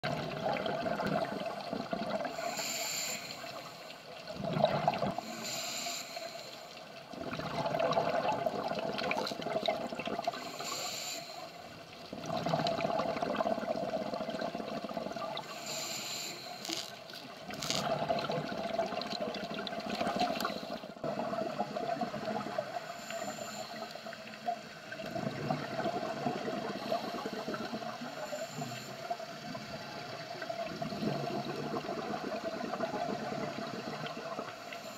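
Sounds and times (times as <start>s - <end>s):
regulator hissing on inhale: 2.2s - 4.2s, 5.2s - 6.9s, 10.3s - 11.8s, 15.4s - 17.8s, 20.0s - 21.0s, 22.6s - 24.7s, 26.8s - 30.3s, 34.5s - 34.9s
exhaust bubbles rushing: 4.3s - 5.2s, 12.1s - 15.2s, 17.7s - 20.2s, 30.7s - 34.5s.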